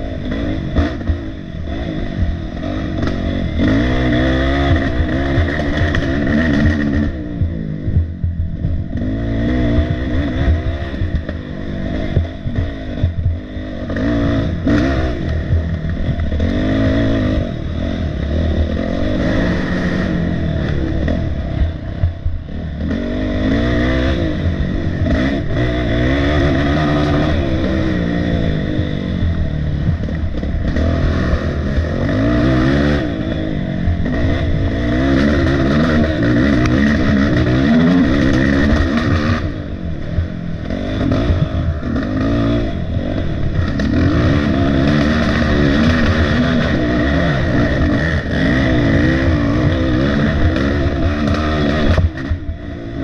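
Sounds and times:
quad engine revving: 0.0 - 53.0.

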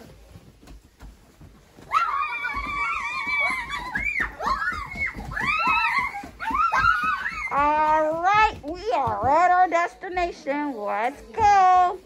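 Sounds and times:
children squealing: 1.9 - 7.7.

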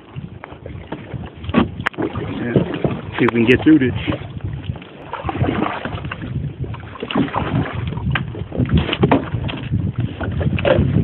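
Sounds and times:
kayak paddle strokes: 0.0 - 11.0
water splashing against kayak: 0.0 - 11.0
wind buffeting microphone: 0.0 - 11.0.

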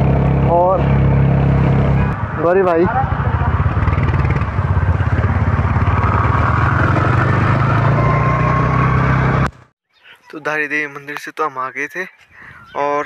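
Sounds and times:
motorcycle engine running: 0.0 - 9.3
wind and road noise: 0.0 - 9.7, 11.0 - 13.0.

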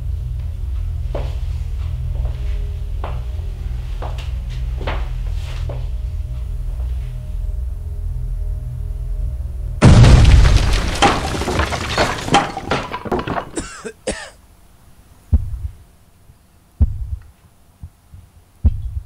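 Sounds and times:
heavy low thuds: 9.8 - 12.3, 15.3 - 15.8, 16.8 - 17.2, 18.6 - 19.0
explosion blowing door apart: 9.8 - 13.6
wood splintering and debris crashing: 9.8 - 13.9.

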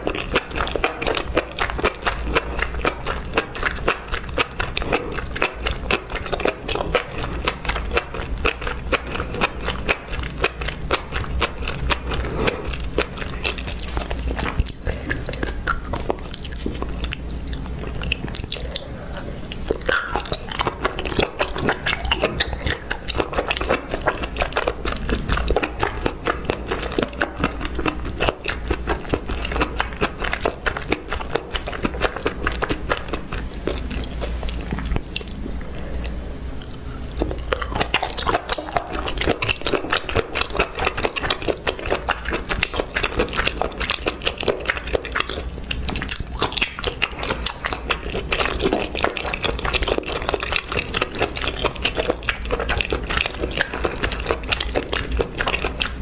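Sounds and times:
person chewing crunchy food: 0.0 - 56.0.

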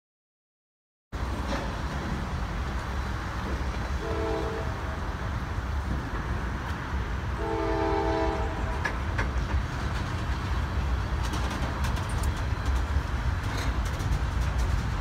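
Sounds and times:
train wheels rumbling on rail: 1.2 - 15.0
train horn chord: 4.0 - 5.0, 7.4 - 8.9.

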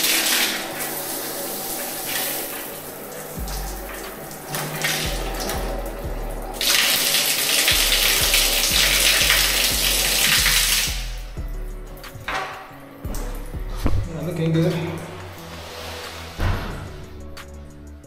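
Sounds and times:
water tap running: 0.0 - 14.2
steady-beat background music: 0.0 - 18.0.

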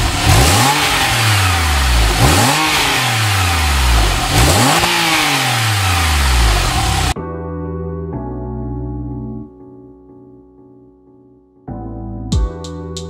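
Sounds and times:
car engine revving: 0.0 - 7.2.

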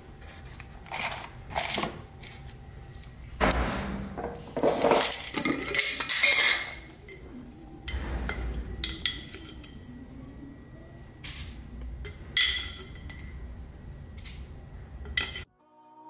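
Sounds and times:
metal lid clinking and scraping: 3.7 - 7.2, 11.2 - 13.4, 15.0 - 15.5.

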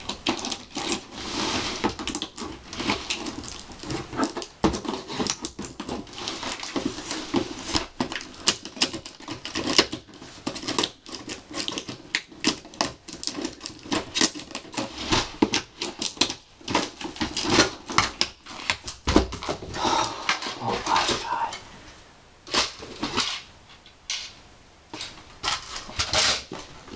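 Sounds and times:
scissors cutting cardboard: 0.0 - 19.5
cardboard and packaging rustling: 0.0 - 21.6, 22.5 - 23.9, 24.9 - 26.9.

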